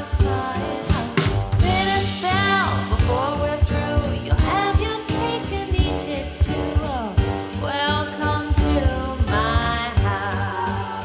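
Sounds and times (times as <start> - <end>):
jazz band with steady beat: 0.0 - 11.0
woman singing jazz: 0.0 - 11.0.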